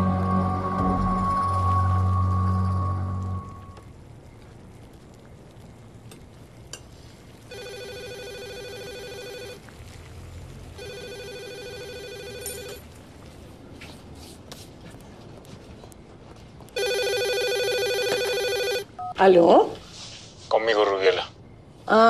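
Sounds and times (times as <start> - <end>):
telephone electronic trilling ring: 7.5 - 9.6, 10.8 - 12.8, 16.8 - 18.9.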